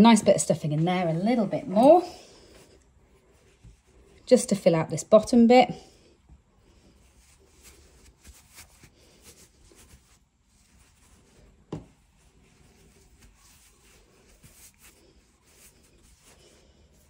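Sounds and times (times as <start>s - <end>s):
rustling of stuffing pushed by hand: 6.8s - 17.0s.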